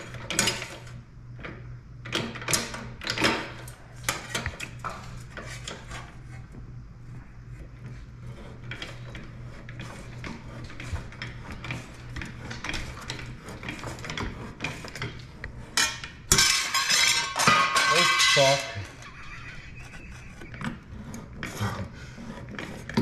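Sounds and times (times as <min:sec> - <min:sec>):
sheet metal clattering: 0:15.8 - 0:19.0.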